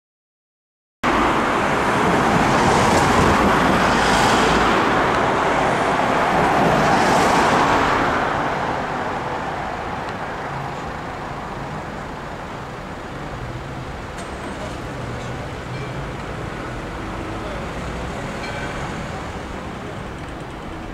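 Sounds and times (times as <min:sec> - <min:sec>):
road traffic passing: 0:01.0 - 0:20.9.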